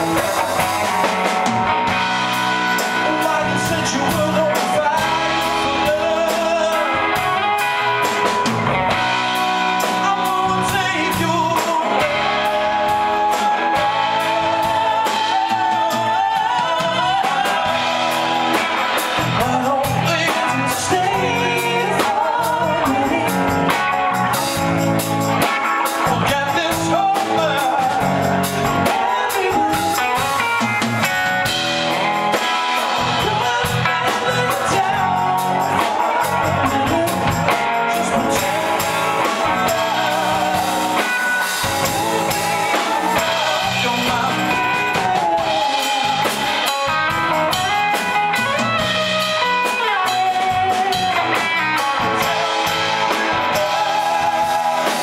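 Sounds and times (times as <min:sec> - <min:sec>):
person singing: 0:00.0 - 0:24.7, 0:25.4 - 0:55.0
drum kit: 0:00.0 - 0:55.0
electric guitar: 0:00.0 - 0:55.0.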